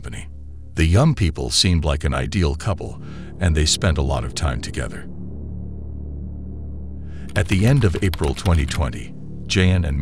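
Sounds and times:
low sustained drone music: 3.0s - 7.3s.

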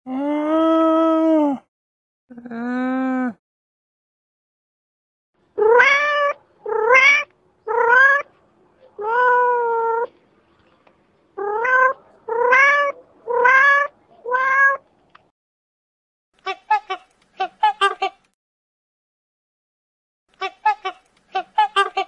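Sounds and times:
cat meowing: 5.6s - 8.3s, 9.0s - 10.1s, 11.4s - 14.8s.

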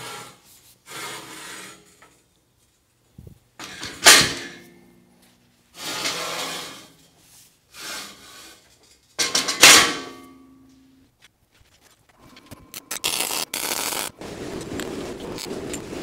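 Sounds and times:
steel scraping and sliding: 0.0s - 2.3s, 5.7s - 9.2s, 11.6s - 16.0s.

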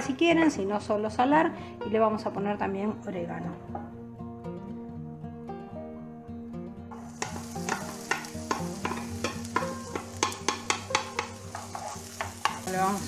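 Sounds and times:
background music: 0.0s - 13.0s
pepper sizzling in hot oil: 6.9s - 13.0s
wooden spoon scraping a pan: 7.0s - 13.0s.

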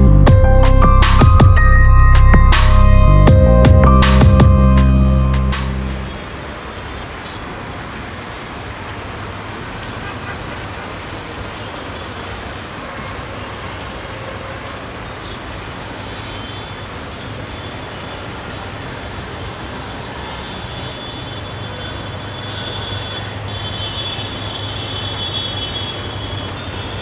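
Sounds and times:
electronic music: 0.0s - 6.2s
urban background noise: 0.0s - 27.0s.

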